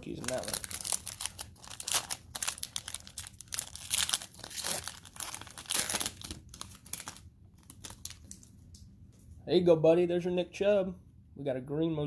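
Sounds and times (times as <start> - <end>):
plastic wrapper crinkling and tearing: 0.0 - 8.8.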